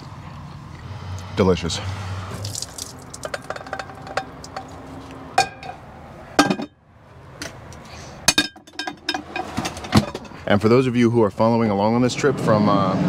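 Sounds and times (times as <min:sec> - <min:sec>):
sharp metal knocks: 0:03.1 - 0:04.7, 0:05.4 - 0:05.8, 0:06.4 - 0:06.8
pots and pans clanking: 0:03.2 - 0:04.7, 0:05.4 - 0:05.8, 0:06.4 - 0:06.8, 0:08.3 - 0:10.4.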